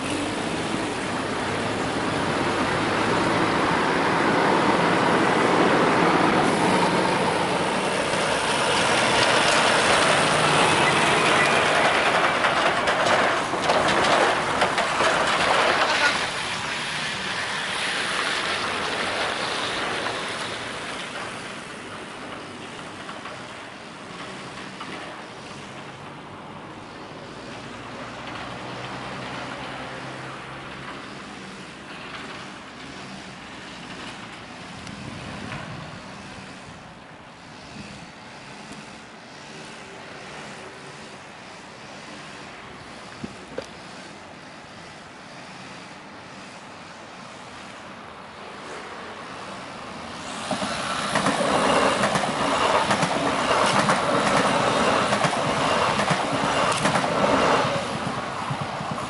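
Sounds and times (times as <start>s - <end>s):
trailer clattering: 0.0s - 26.3s
distant traffic hum: 0.0s - 59.0s
lorry tyre and road noise: 0.0s - 59.0s.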